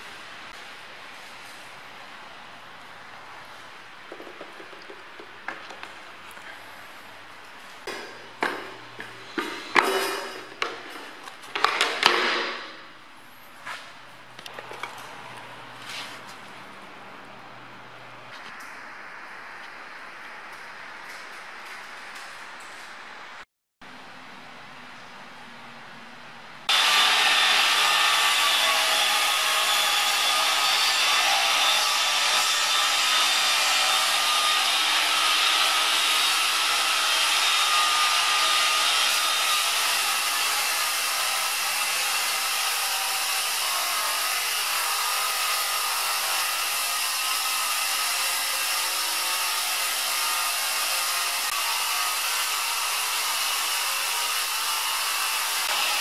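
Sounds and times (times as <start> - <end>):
circular saw cutting aluminium: 26.7 - 56.0.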